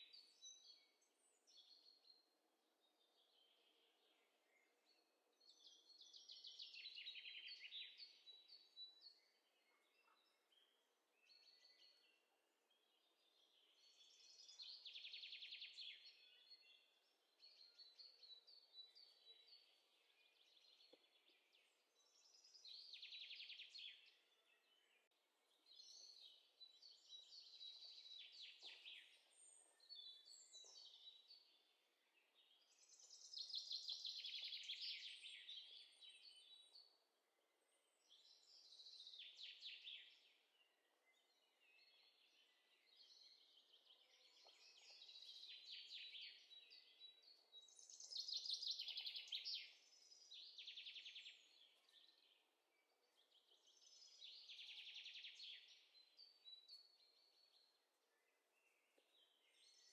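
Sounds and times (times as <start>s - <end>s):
songbird trilling and chirping: 37.8s - 59.9s.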